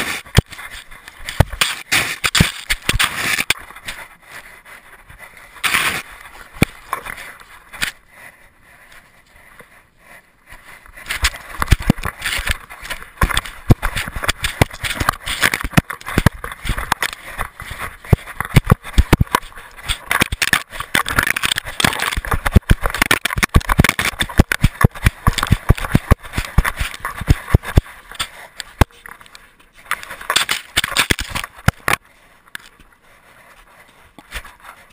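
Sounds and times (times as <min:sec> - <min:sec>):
paws crunching on gravel and snow: 0:00.0 - 0:34.9
camera rattling: 0:00.2 - 0:04.0, 0:11.0 - 0:32.0.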